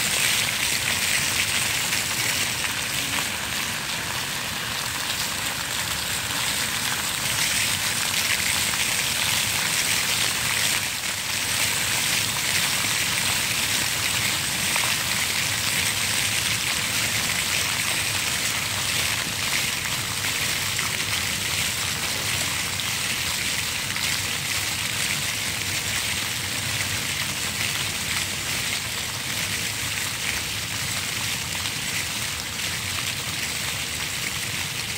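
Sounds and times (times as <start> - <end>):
fountain water splashing: 0.0 - 34.9.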